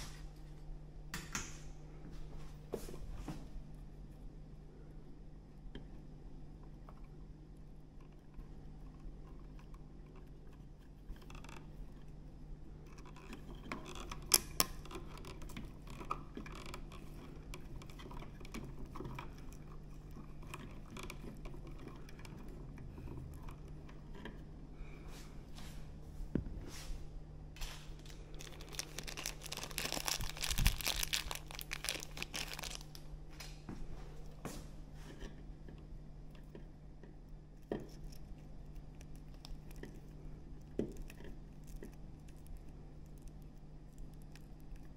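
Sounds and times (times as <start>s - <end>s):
crackling of plastic: 9.0s - 24.5s, 27.6s - 33.6s, 35.2s - 44.9s
plastic connectors clicking and scraping: 12.8s - 24.5s, 28.0s - 33.0s, 35.1s - 44.9s.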